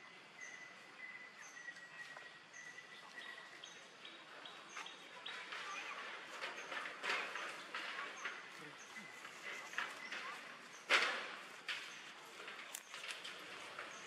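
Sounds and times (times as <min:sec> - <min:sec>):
rustling: 0:04.8 - 0:14.0.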